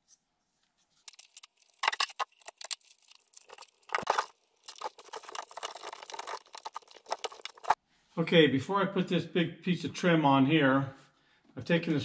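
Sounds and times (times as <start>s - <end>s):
plastic crunch: 1.0s - 7.8s
plastic trim crackling: 1.1s - 7.8s.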